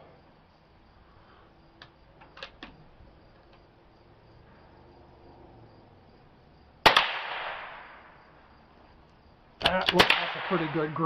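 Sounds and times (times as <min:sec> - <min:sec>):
faint insect buzz: 0:00.0 - 0:06.8, 0:07.6 - 0:09.7
rifle shot: 0:06.8 - 0:08.1, 0:09.6 - 0:11.0.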